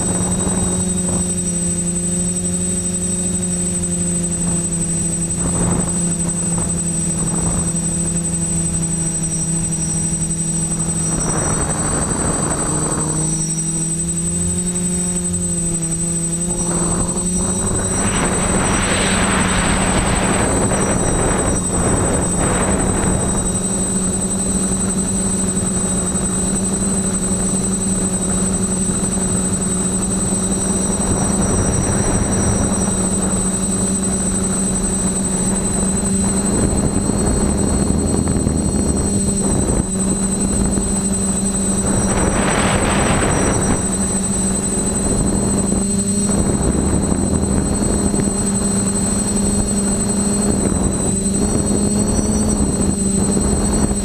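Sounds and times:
drone propellers whining: 0:00.0 - 0:54.0
rushing air: 0:16.2 - 0:24.3, 0:36.3 - 0:48.2.

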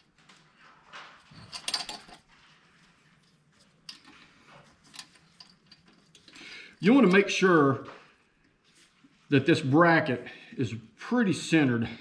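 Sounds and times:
light metal clicks and clinks: 0:01.3 - 0:02.2, 0:03.8 - 0:07.3.

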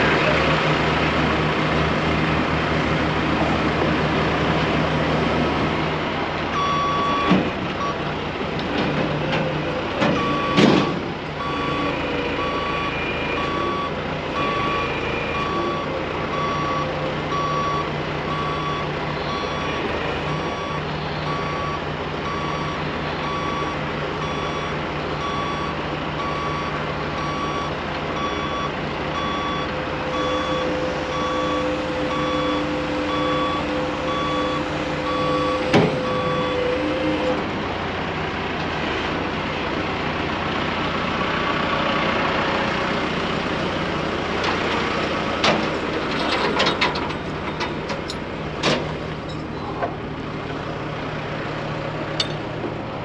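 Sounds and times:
diesel engine hum: 0:00.0 - 0:53.0
reverse alarm beeping: 0:06.6 - 0:08.0, 0:10.2 - 0:36.7.

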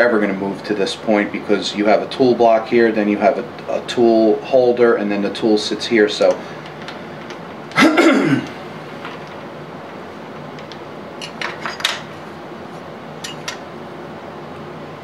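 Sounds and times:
steady background hum: 0:00.0 - 0:15.0
metal parts clinking: 0:11.2 - 0:12.1, 0:13.2 - 0:13.6.

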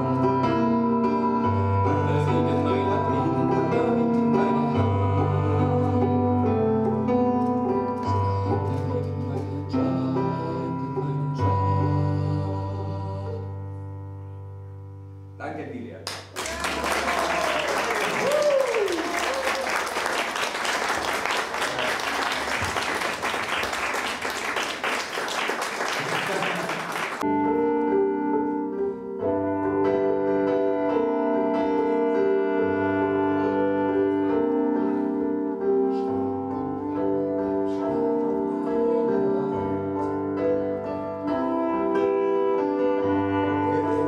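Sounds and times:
slow instrumental music: 0:00.0 - 0:16.4, 0:27.2 - 0:44.0
audience applauding: 0:16.1 - 0:27.2.

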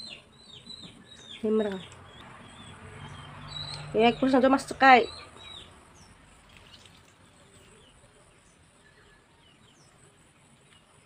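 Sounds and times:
high bird chirps: 0:00.0 - 0:07.0.

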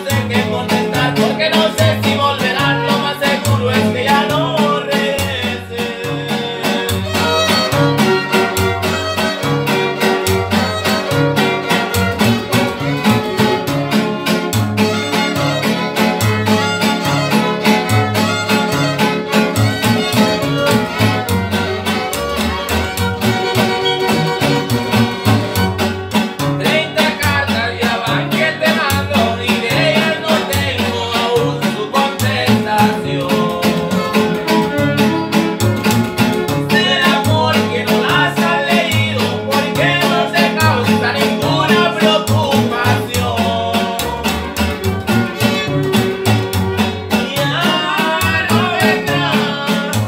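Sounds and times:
plucked upright bass: 0:00.0 - 0:50.0
strummed guitars: 0:00.0 - 0:50.0
violins playing melody: 0:06.9 - 0:26.2, 0:44.3 - 0:47.1.

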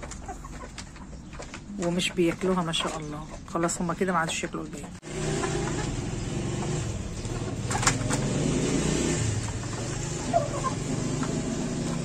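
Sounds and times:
hens clucking: 0:00.0 - 0:08.1, 0:09.4 - 0:12.0.

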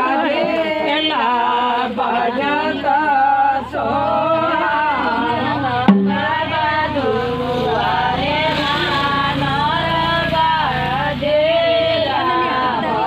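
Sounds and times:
women singing together: 0:00.0 - 0:13.0
drum stroke: 0:05.9 - 0:07.7.

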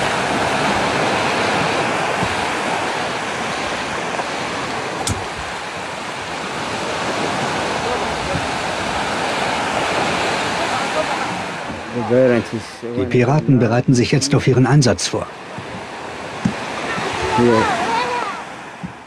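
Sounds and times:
surf breaking on sandy shore: 0:00.0 - 0:19.0.

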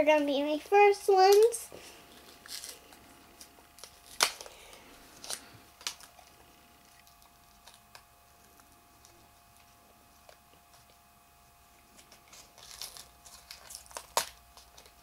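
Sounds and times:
toy packaging crinkling: 0:01.1 - 0:06.4, 0:11.9 - 0:15.0.

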